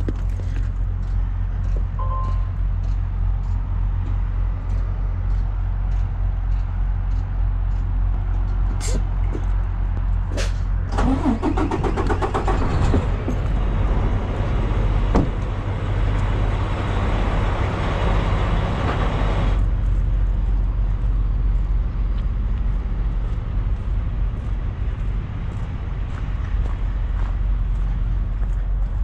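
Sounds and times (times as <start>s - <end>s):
truck diesel engine idling: 9.8s - 29.0s.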